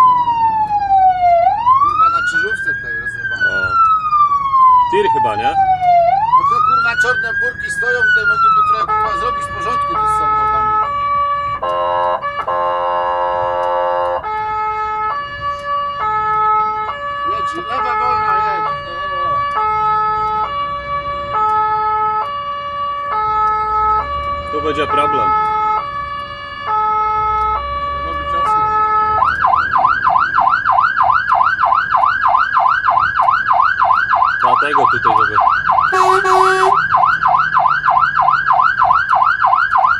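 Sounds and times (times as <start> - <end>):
fire engine two-tone siren: 0.0 - 39.9
multi-tone horn blast: 11.6 - 14.3, 35.9 - 36.8.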